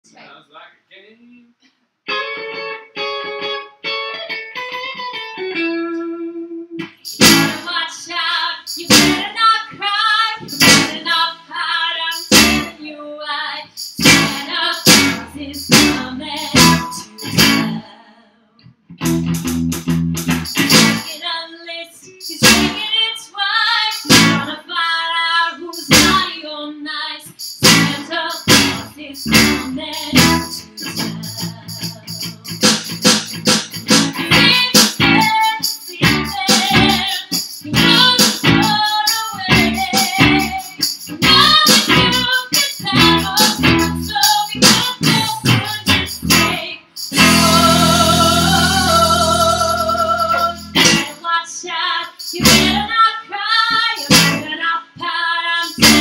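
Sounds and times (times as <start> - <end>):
guitar picking: 2.1 - 7.6, 8.9 - 9.3, 10.6 - 11.0, 12.3 - 12.7, 14.0 - 17.8, 18.9 - 21.1, 22.4 - 22.8, 24.1 - 24.5, 27.6 - 35.4, 37.7 - 38.8, 39.4 - 51.2, 52.4 - 52.9, 54.1 - 54.5, 55.8 - 56.0
bass guitar: 6.0 - 7.6, 8.9 - 9.3, 10.4 - 11.0, 12.3 - 12.7, 14.0 - 17.8, 18.9 - 21.1, 22.4 - 22.8, 24.1 - 24.5, 25.9 - 26.3, 27.6 - 35.4, 36.0 - 38.8, 39.4 - 51.2, 52.4 - 52.9, 54.0 - 54.5, 55.8 - 56.0
electronic drum kit: 6.8 - 7.7, 8.7 - 9.3, 10.4 - 11.1, 12.1 - 12.7, 13.8 - 17.8, 19.0 - 21.1, 22.4 - 22.8, 24.0 - 24.5, 25.8 - 26.3, 27.3 - 51.2, 52.4 - 52.8, 54.0 - 54.4, 55.7 - 56.0
woman singing: 7.4 - 18.6, 21.0 - 32.6, 34.2 - 56.0.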